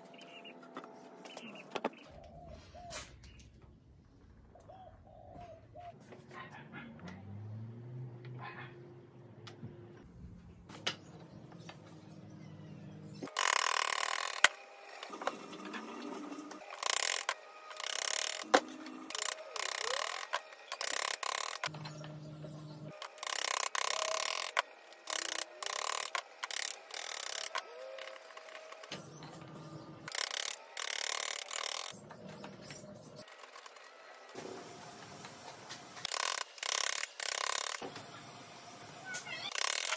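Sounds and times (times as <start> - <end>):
chisel shaving wood: 13.3 - 21.7, 22.9 - 29.1, 30.1 - 32.0, 36.0 - 37.8, 39.3 - 39.9.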